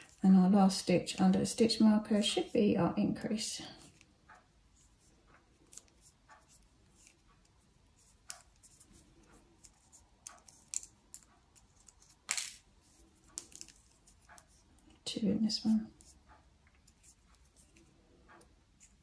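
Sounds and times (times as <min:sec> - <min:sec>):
crochet hook clicking: 0:05.3 - 0:12.2.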